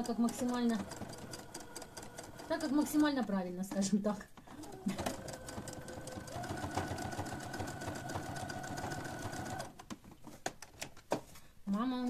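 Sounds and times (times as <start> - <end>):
sewing machine stitching: 0.0 - 3.9, 4.5 - 9.8.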